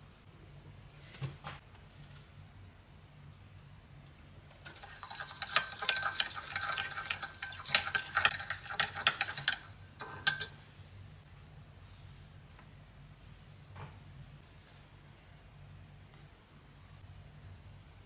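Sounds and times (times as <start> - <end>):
spoon clinking in glass bowl: 4.6 - 10.6.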